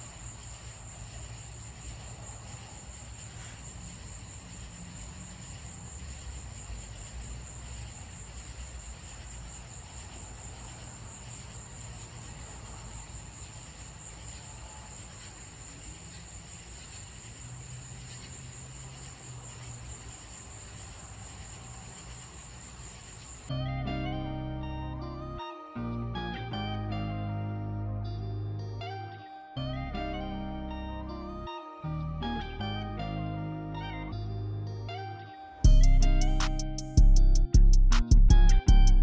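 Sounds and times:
insects trilling: 0.0 - 23.6.

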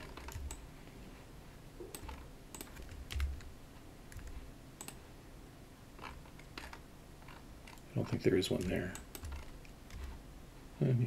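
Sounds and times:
keyboard and mouse clicks: 0.0 - 0.6, 1.8 - 5.0, 6.0 - 10.2.

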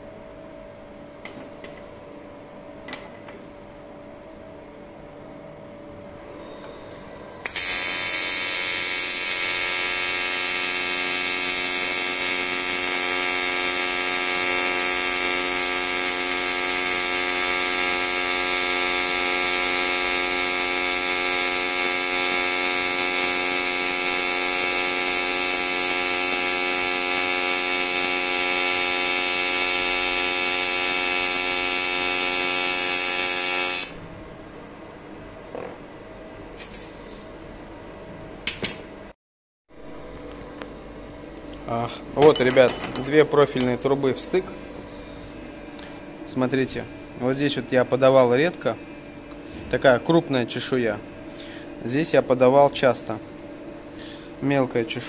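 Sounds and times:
welding arc buzzing: 7.4 - 34.0.

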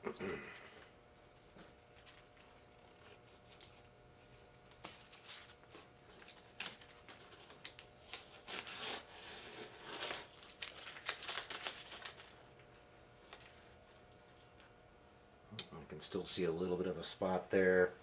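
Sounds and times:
tape peeling and crumpling: 1.5 - 14.8.

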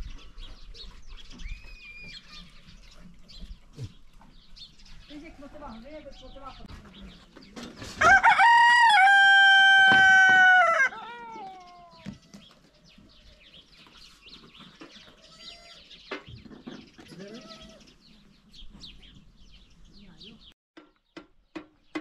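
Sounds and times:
rooster crowing: 8.0 - 11.6.

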